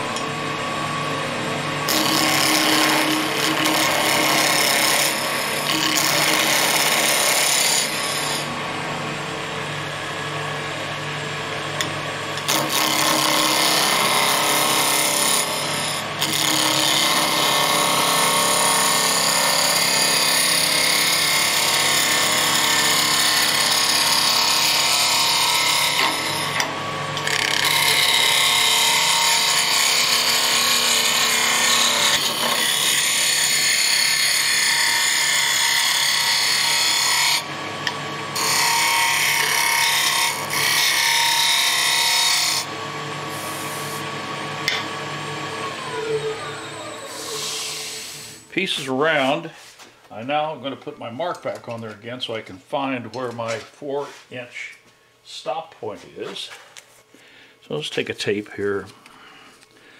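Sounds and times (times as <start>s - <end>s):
lathe humming: 0.0s - 48.5s
gouge cutting spinning wood: 1.8s - 8.6s, 12.3s - 48.3s.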